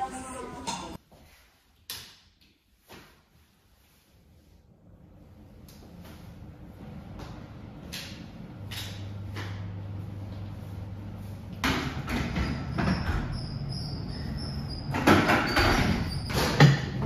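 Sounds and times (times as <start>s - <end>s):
thin squeak: 12.4s - 16.3s.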